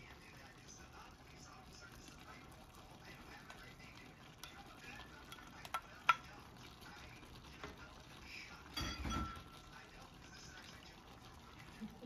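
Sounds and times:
faint sizzle in a frying pan: 0:00.0 - 0:12.0
spatula clicking against pan: 0:05.3 - 0:06.4.

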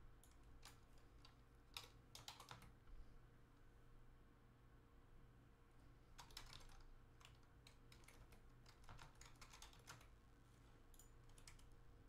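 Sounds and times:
typing on computer keyboard: 0:00.2 - 0:02.8, 0:06.2 - 0:10.2, 0:10.9 - 0:11.8.

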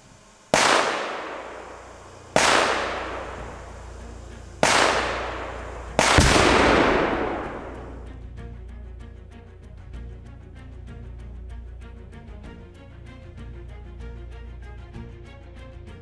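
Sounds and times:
explosive target blasts: 0:00.6 - 0:08.2.

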